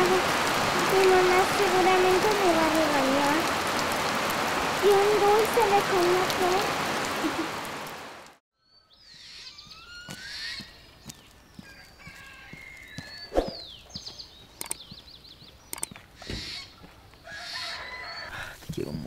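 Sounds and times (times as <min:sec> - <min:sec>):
rain hissing: 0:00.0 - 0:08.4
birds chirping and whistling: 0:08.6 - 0:18.4
clicks: 0:14.6 - 0:14.8, 0:15.7 - 0:16.0.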